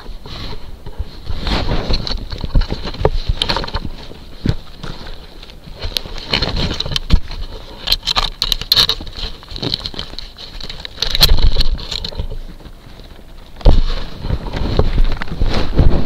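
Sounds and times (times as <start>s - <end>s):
bump and scuffle: 0.0s - 16.0s
animal scratching at camera housing: 1.2s - 12.8s.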